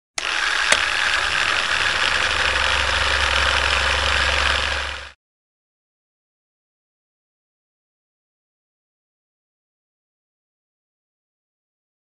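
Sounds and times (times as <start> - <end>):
film projector whirr and clatter: 0.1 - 5.2
low hum: 0.2 - 5.2.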